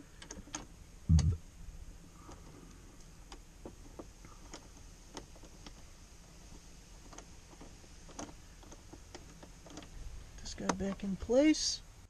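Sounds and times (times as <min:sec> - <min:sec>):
dull low thump: 0:01.1 - 0:01.4.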